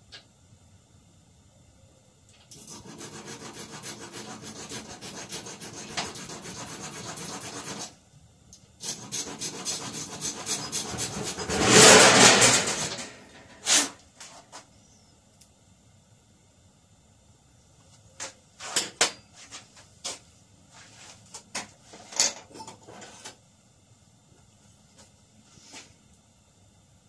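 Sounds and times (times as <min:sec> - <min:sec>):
hand file rasping on metal: 0:02.6 - 0:07.9, 0:08.8 - 0:13.8
loud burst of noise: 0:08.8 - 0:13.7.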